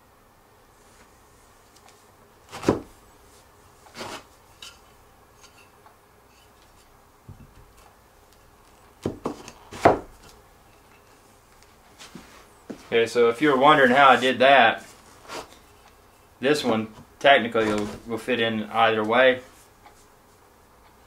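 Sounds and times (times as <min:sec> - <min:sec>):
wooden chair parts knocking: 0:07.3 - 0:07.8, 0:09.0 - 0:10.3.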